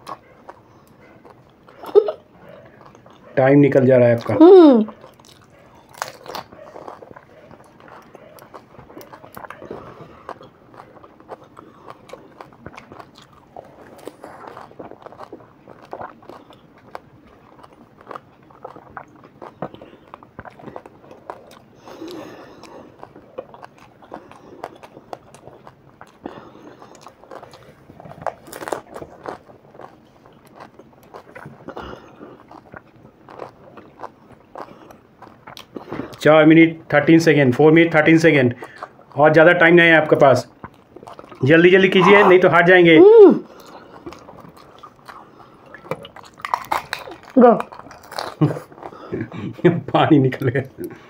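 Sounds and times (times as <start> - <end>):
crunchy food being chewed: 0.0 - 51.0
crisp shells crunching: 43.2 - 48.9.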